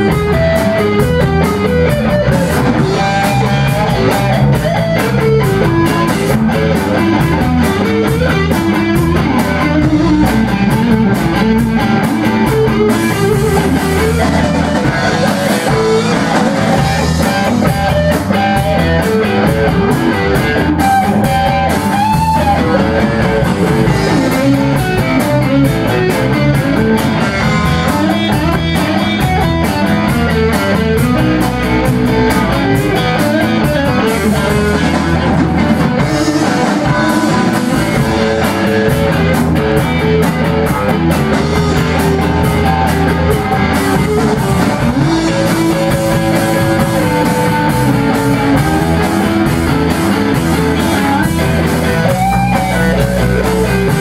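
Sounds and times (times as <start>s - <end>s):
blues-rock band playing: 0.0s - 54.0s
drum kit cymbal beat: 0.0s - 54.0s
electric guitars: 0.0s - 54.0s.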